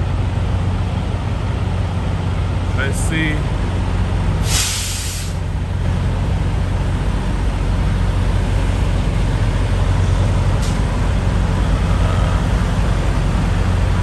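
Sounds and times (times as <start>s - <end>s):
diesel truck engines rumbling: 0.0s - 14.0s.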